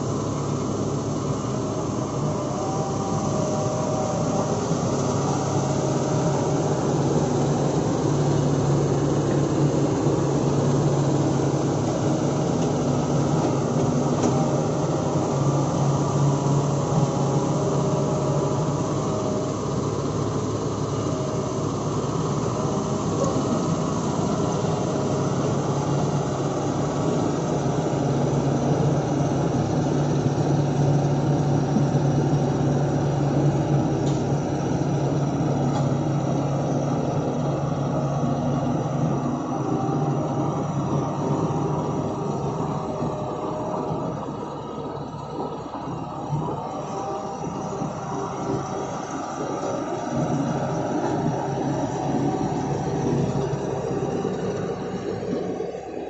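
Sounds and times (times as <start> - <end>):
heavy diesel engine running: 0.0 - 56.0.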